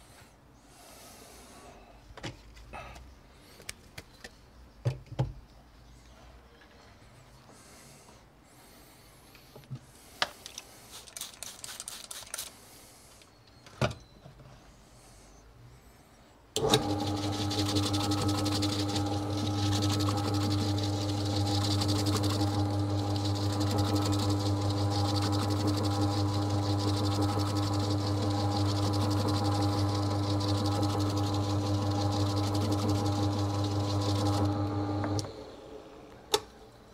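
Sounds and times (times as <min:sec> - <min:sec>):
ball spinner motor humming: 0:16.6 - 0:36.0.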